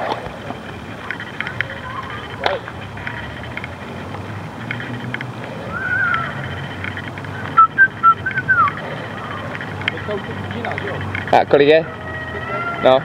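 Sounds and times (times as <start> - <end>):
person whistling a tune: 7.6 - 8.8.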